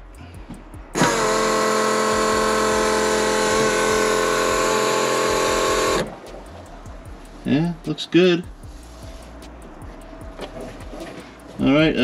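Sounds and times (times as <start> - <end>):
fuel pump whine: 0.0 - 7.9.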